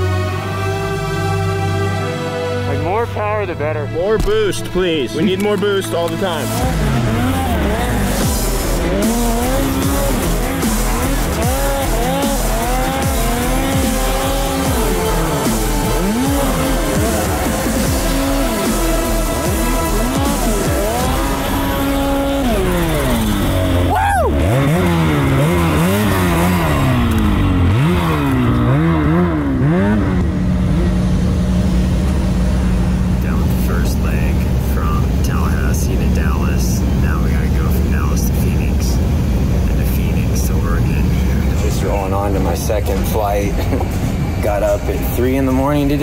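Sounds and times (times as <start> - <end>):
background music with bass beat: 0.0 - 37.9
snowmobile engines revving: 0.0 - 46.0.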